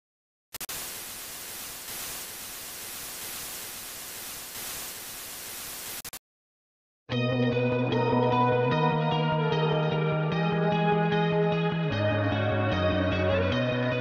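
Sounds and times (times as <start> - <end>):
tv static hiss: 0.6 - 6.2.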